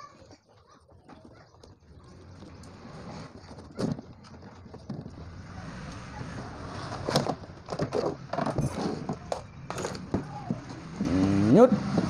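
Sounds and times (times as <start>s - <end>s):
wooden panel scraping: 6.8s - 10.6s.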